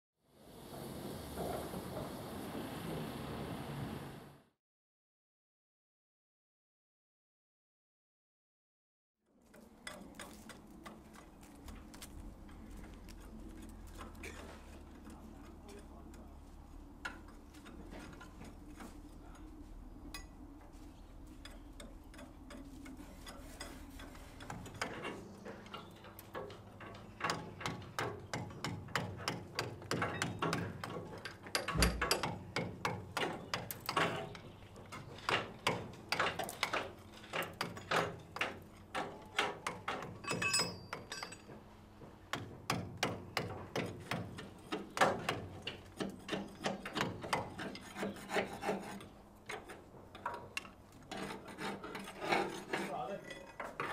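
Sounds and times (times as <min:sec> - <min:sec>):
hand tool scraping steel: 0:21.4 - 0:41.6, 0:43.4 - 0:53.9.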